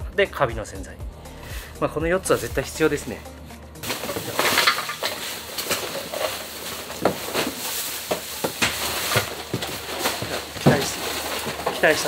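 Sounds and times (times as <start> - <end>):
rubber boots rustling and scuffing: 3.8 - 12.0.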